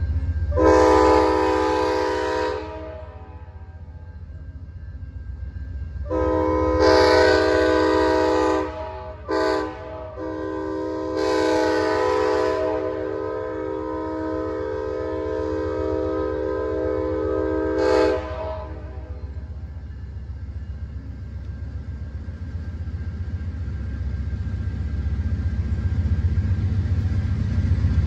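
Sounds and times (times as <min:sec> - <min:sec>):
locomotive air horn blasts: 0:00.5 - 0:03.6, 0:06.0 - 0:19.2.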